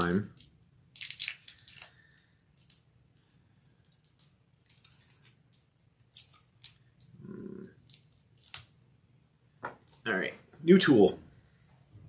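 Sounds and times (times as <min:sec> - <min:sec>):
cellophane wrapper crackling: 0:00.1 - 0:07.1, 0:07.8 - 0:08.7.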